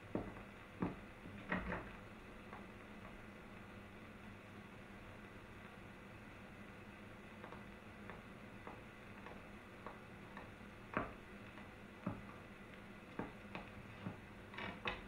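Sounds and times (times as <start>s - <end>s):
footsteps on wooden floor: 0.1s - 1.1s, 7.4s - 12.5s, 13.1s - 14.2s.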